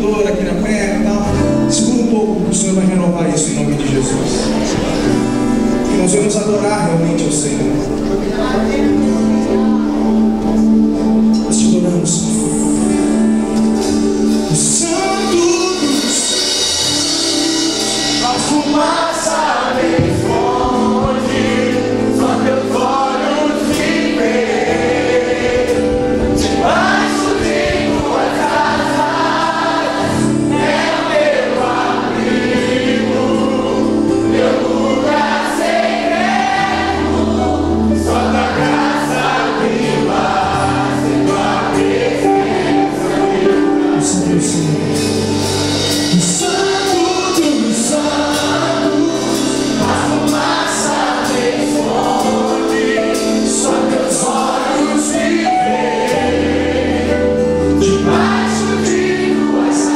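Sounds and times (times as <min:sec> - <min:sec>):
acoustic guitar and band: 0:00.0 - 0:59.9
crowd singing along: 0:00.0 - 0:59.9
man singing lead: 0:11.4 - 0:13.5, 0:14.3 - 0:29.3, 0:30.5 - 0:36.2, 0:43.5 - 0:56.4.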